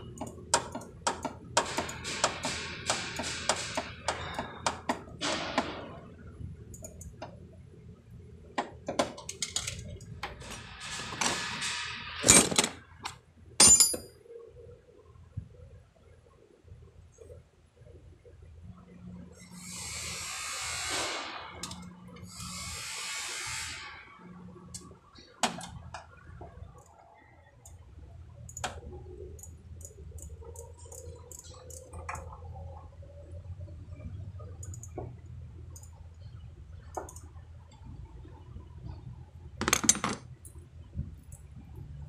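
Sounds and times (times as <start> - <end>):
metallic clicks and taps of tools: 0.2 - 5.7, 6.7 - 7.4, 8.6 - 10.4, 28.4 - 32.3, 34.6 - 36.0, 36.9 - 37.8
low steady hum: 24.1 - 42.0.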